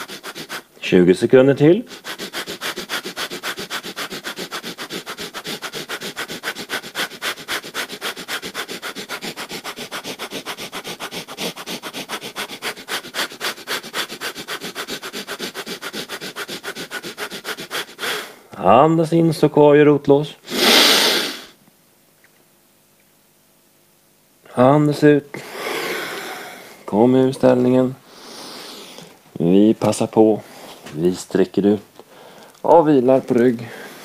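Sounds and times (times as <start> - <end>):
rapid forceful nose breathing: 0.0 - 0.7, 1.7 - 18.5, 20.5 - 21.6, 25.4 - 26.9, 28.0 - 29.2, 33.7 - 34.0.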